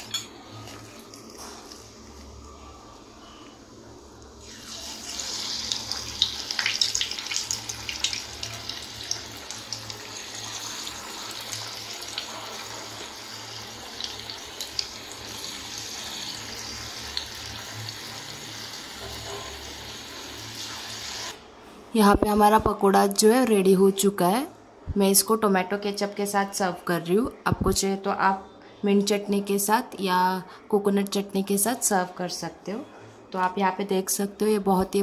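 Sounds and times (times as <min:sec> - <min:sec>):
batter sizzling in hot oil: 0:04.4 - 0:21.4.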